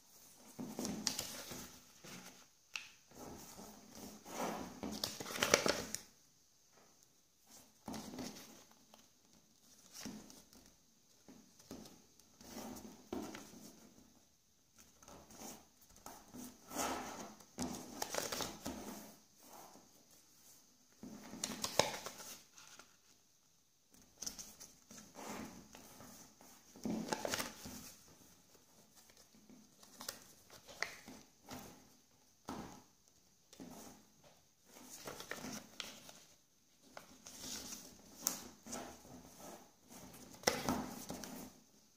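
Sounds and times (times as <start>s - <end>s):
paper rustling and creasing: 0.5s - 2.5s, 3.4s - 6.0s, 14.8s - 19.2s, 21.2s - 23.2s, 23.9s - 31.7s, 34.6s - 41.6s.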